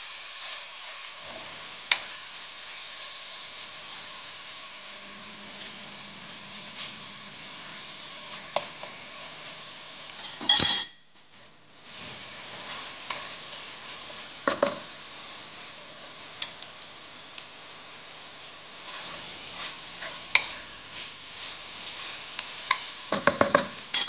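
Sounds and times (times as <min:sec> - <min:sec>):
frying hiss: 0:00.0 - 0:24.0
utensils clinking on wok: 0:10.1 - 0:11.0, 0:22.4 - 0:24.0.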